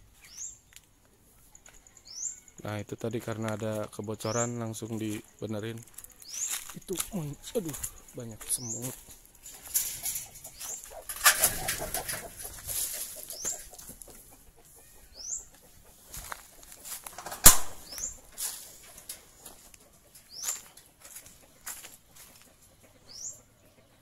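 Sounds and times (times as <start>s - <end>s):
chickens flapping wings: 10.6s - 14.2s.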